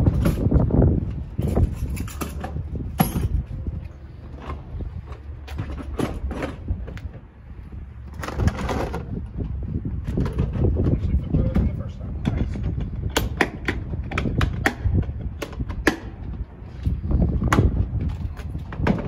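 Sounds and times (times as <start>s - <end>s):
tools and cases knocking and rattling: 0.0s - 3.6s, 8.1s - 16.5s
wind rumbling on microphone: 0.0s - 19.0s.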